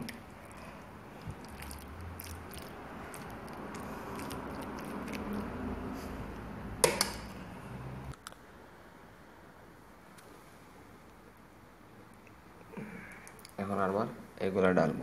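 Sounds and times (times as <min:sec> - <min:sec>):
wet squishing of sauced pasta: 0:00.0 - 0:06.6
low steady hum: 0:00.0 - 0:15.0.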